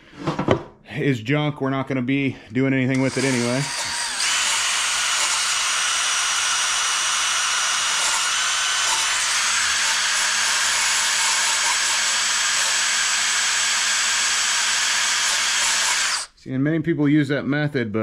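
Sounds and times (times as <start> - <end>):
cordless drill grinding with high whine: 2.9 - 16.3.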